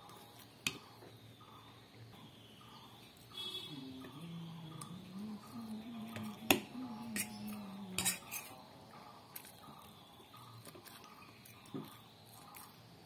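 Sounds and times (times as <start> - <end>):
fork clinking on ceramic plate: 8.0 - 8.5.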